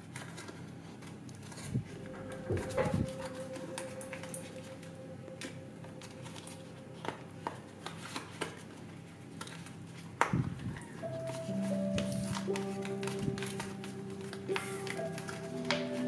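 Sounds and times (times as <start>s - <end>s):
background music: 1.9s - 8.6s, 11.0s - 16.0s.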